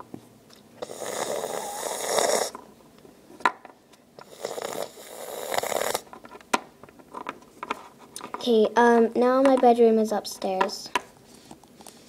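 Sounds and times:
breathy hissing from mouth: 0:00.8 - 0:02.6, 0:04.2 - 0:06.1.

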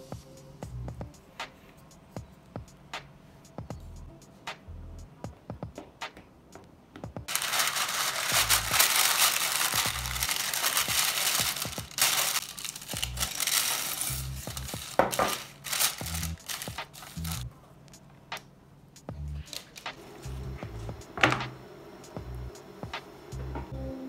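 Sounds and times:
music beat: 0:00.0 - 0:20.0, 0:22.0 - 0:23.5
baking parchment crinkling: 0:07.3 - 0:17.4
dried beans rattling: 0:07.3 - 0:17.4.

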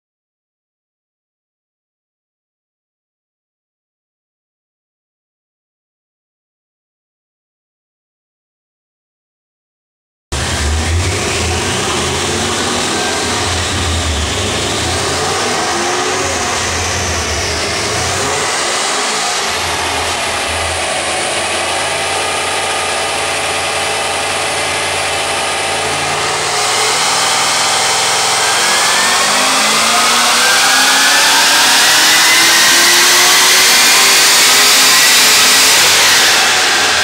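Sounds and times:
car engine revving on a dyno: 0:10.3 - 0:37.0.

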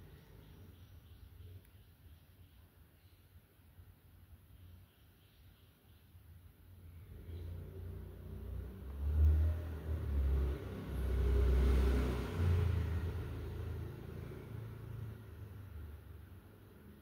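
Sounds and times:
motor vehicle passing: 0:07.0 - 0:17.0.

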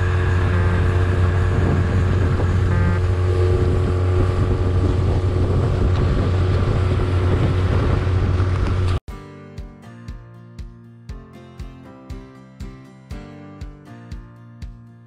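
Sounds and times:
outboard motor running: 0:00.0 - 0:09.0
water rushing past hull: 0:00.0 - 0:09.0
wind buffeting microphone: 0:00.0 - 0:09.0
plucked guitar music: 0:09.0 - 0:15.0.

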